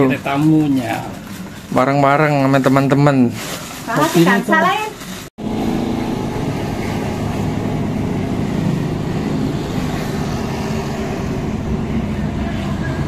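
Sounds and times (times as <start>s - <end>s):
motorcycle engine hum: 5.4s - 13.0s
wind and road noise: 5.4s - 13.0s.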